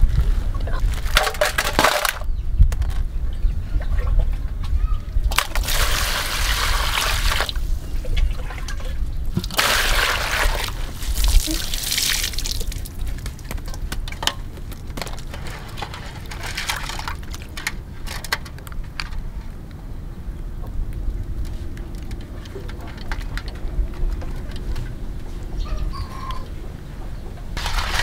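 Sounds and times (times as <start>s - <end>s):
water splashing and dripping: 8.2s - 13.3s, 27.6s - 28.0s.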